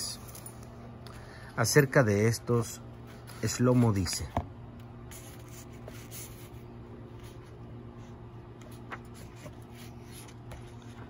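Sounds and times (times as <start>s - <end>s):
steady low hum: 0.0s - 11.0s
paper page rustling: 5.1s - 11.0s.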